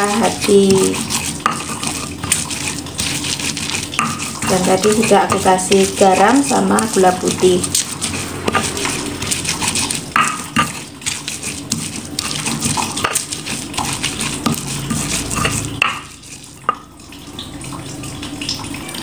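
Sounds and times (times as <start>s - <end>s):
stone pestle crushing and scraping: 0.0s - 16.9s
stone knocking on stone: 10.1s - 10.8s, 15.4s - 16.1s.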